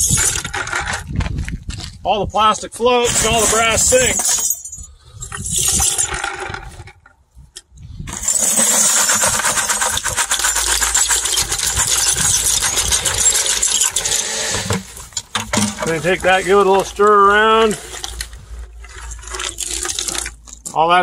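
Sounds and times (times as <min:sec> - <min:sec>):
metal pieces clinking into water: 0:03.1 - 0:06.4, 0:08.1 - 0:16.1
pieces and water pouring: 0:05.2 - 0:06.9, 0:08.1 - 0:20.8.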